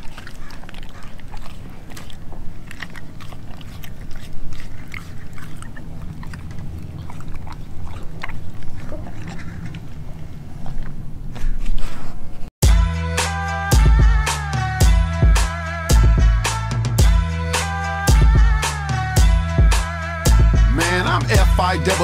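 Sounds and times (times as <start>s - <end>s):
teeth clicking: 0.0s - 10.0s
dog chewing meat: 0.0s - 11.2s.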